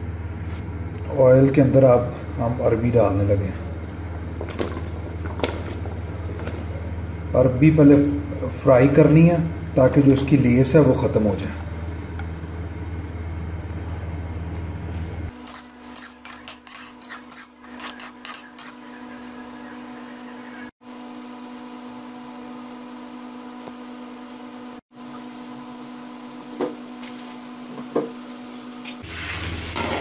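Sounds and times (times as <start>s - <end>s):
low hum: 0.0s - 15.3s
slices frying in hot oil: 28.5s - 30.0s.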